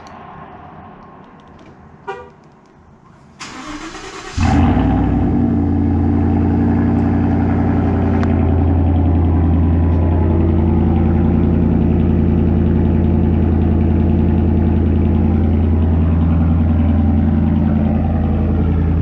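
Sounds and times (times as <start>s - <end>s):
engine idling loudly: 4.4s - 19.0s.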